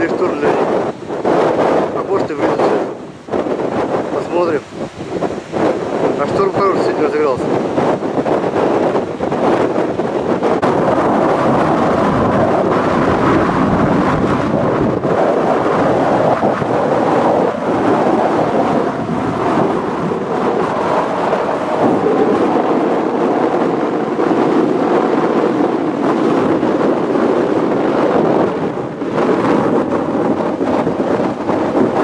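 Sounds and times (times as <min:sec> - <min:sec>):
surf breaking on beach: 0:00.0 - 0:32.0
wind buffeting microphone: 0:00.0 - 0:32.0.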